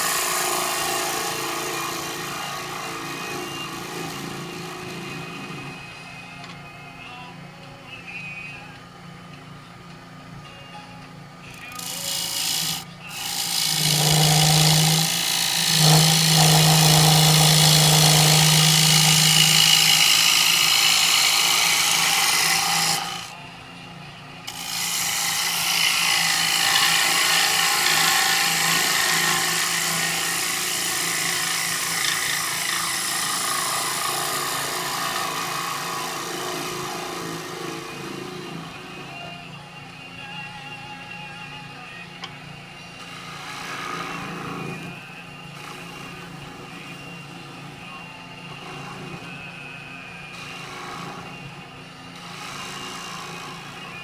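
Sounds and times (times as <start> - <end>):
gouge scraping spinning wood: 0.0 - 5.8, 11.6 - 23.3, 24.5 - 39.1, 43.0 - 47.5, 48.5 - 49.4, 50.4 - 51.6, 52.2 - 54.0
wood lathe humming: 0.0 - 5.9, 11.5 - 23.4, 24.5 - 39.2, 43.0 - 49.4, 50.3 - 54.0.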